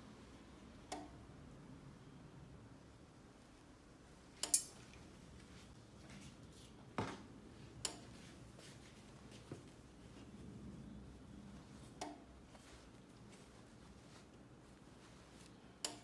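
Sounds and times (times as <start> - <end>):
heat press clicks and taps: 0.9 - 1.2, 12.0 - 12.3
fabric rustling: 4.8 - 15.8.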